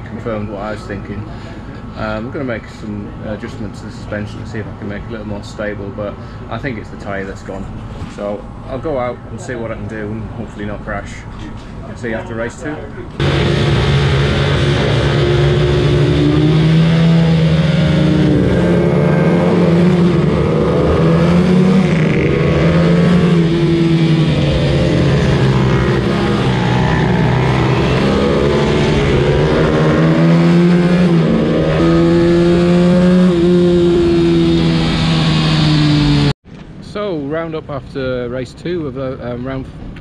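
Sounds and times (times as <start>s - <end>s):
minibike engine revving: 13.2s - 36.3s.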